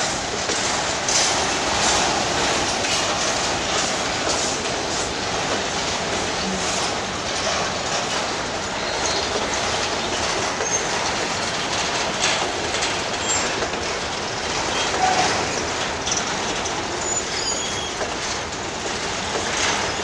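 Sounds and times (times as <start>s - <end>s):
train wheels rumbling on rails: 0.0s - 20.0s
high wheel squeaks: 10.5s - 11.6s, 14.7s - 15.6s, 17.0s - 18.1s.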